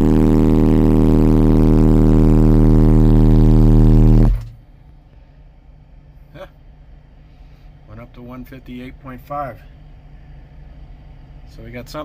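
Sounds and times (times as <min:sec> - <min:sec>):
subwoofer low test tone: 0:00.0 - 0:04.9.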